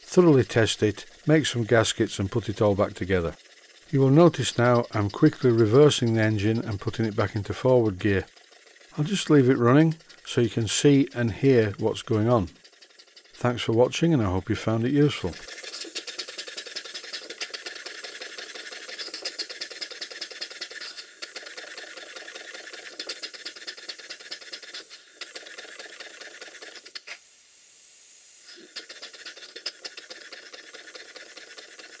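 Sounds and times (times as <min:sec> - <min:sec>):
steady steam hiss: 0:00.0 - 0:12.6, 0:26.6 - 0:29.2
steam engine exhaust beats: 0:00.0 - 0:15.9
mechanical clicks: 0:00.1 - 0:27.2.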